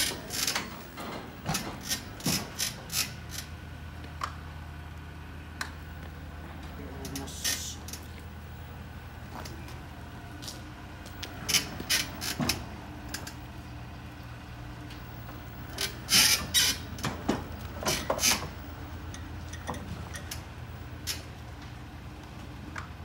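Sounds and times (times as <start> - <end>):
scraping and creaking: 0.0 - 3.5, 10.4 - 13.4, 15.7 - 20.4
pallet jack humming: 0.0 - 23.0.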